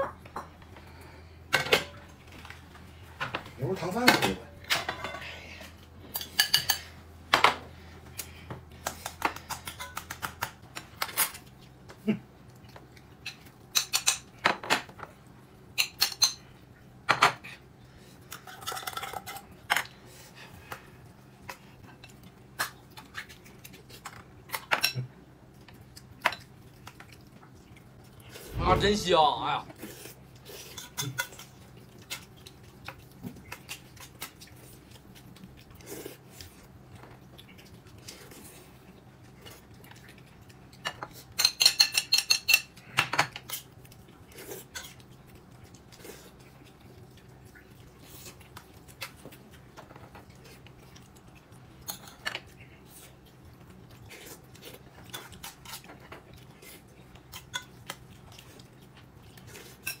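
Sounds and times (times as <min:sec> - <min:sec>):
utensils clinking against dishes: 0:06.1 - 0:06.9, 0:40.8 - 0:43.6.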